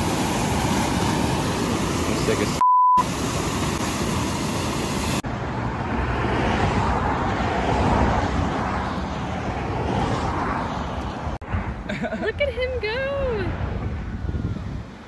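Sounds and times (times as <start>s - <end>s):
whitewater rushing: 0.0s - 5.2s.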